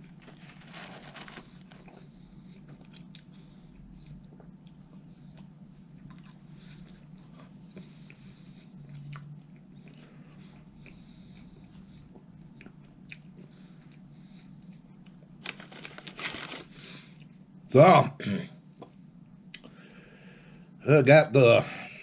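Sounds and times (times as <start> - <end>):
person chewing crunchy food: 0.0 - 14.1
steady low hum: 0.0 - 22.0.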